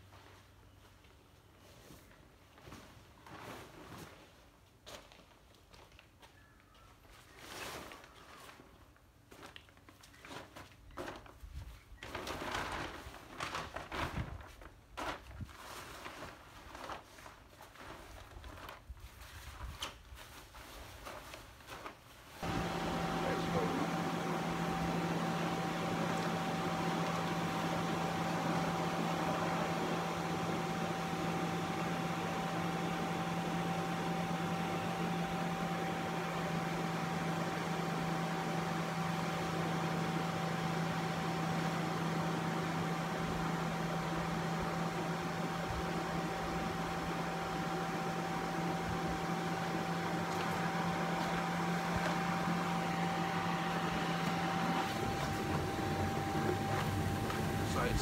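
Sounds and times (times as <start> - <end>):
electric air blower humming: 22.4 - 58.0.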